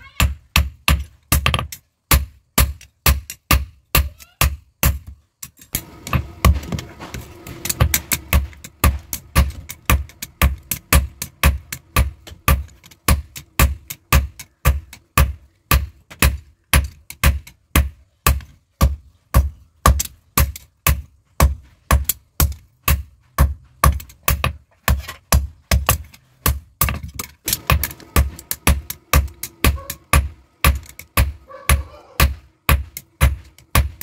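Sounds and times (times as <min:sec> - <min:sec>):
hammer striking metal on anvil: 0:05.8 - 0:15.8, 0:27.5 - 0:34.0.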